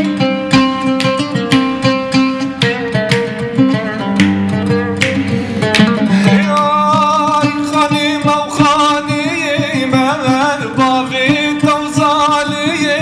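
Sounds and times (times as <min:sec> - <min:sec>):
plucked string instrument: 0:00.0 - 0:13.0
man singing: 0:05.9 - 0:13.0.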